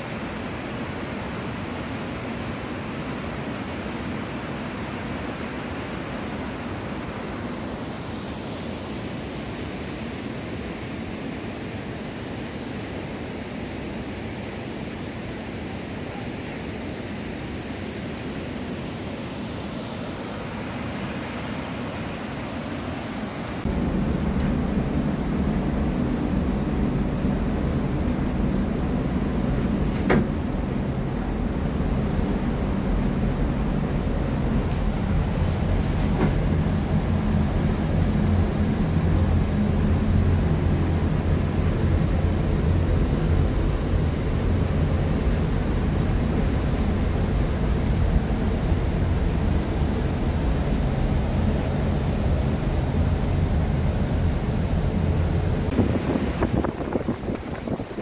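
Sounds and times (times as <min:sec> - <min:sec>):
rushing water roar: 0:00.0 - 0:58.0
wind buffeting microphone: 0:23.6 - 0:58.0.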